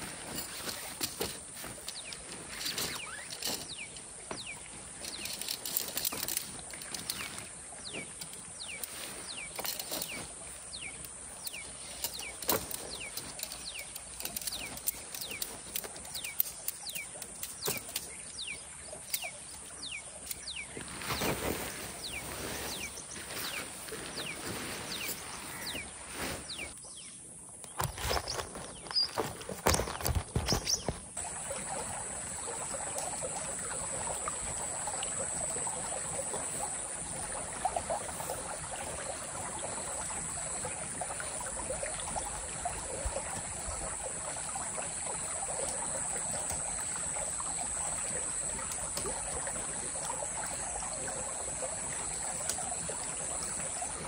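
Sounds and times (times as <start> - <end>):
tent fabric rustling and flapping: 0.0 - 3.9, 4.6 - 16.4, 20.8 - 26.8, 27.7 - 31.8
bird chirping: 1.9 - 5.6.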